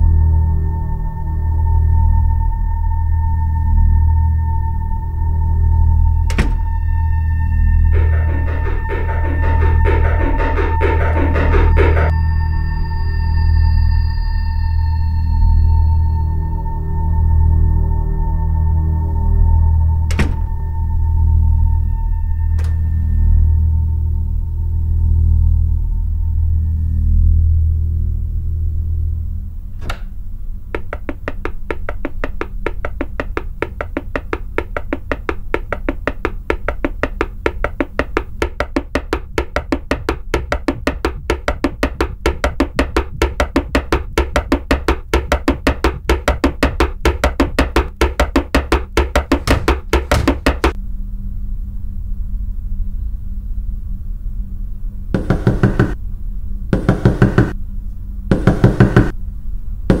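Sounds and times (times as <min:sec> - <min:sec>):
low droning suspense score: 0:00.0 - 0:33.1, 0:50.7 - 1:00.0
loud knocking on wooden door: 0:06.3 - 0:06.8, 0:20.1 - 0:20.5, 0:30.8 - 0:50.8, 0:55.2 - 0:56.0, 0:56.8 - 0:57.6, 0:58.3 - 0:59.1
fast even tapping: 0:07.9 - 0:12.1, 0:30.8 - 0:50.8, 0:55.2 - 0:56.0, 0:56.8 - 0:57.6, 0:58.3 - 0:59.1.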